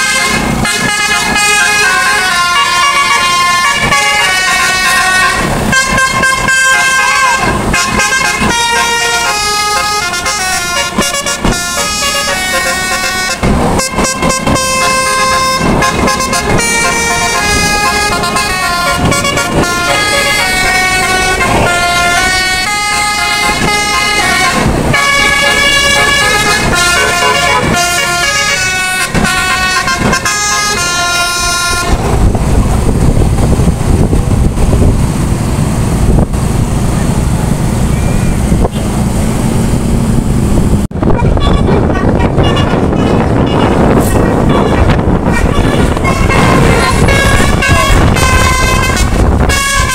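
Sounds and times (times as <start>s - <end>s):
bus musical air horn tune: 0.0s - 32.2s, 40.9s - 49.9s
wind rumble on microphone: 10.1s - 49.9s.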